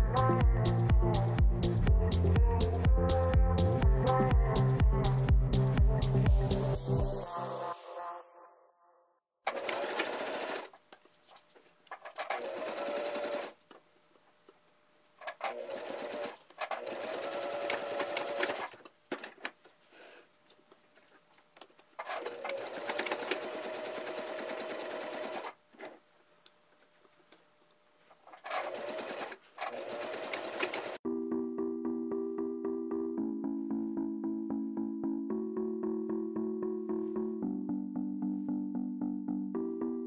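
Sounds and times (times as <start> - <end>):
sewing machine whirring: 9.5 - 10.8, 11.9 - 13.6, 15.2 - 18.9, 22.0 - 26.0, 28.2 - 31.0.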